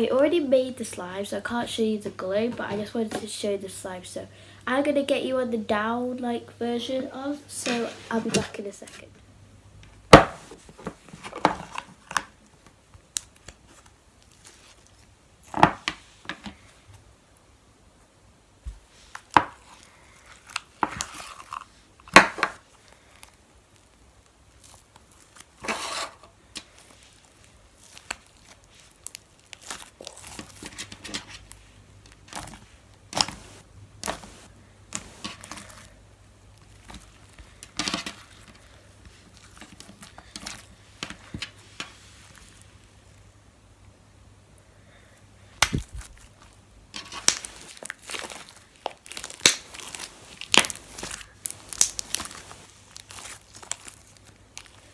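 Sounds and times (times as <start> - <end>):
slime squished by hand: 26.6 - 31.5, 32.2 - 36.0, 45.6 - 54.9.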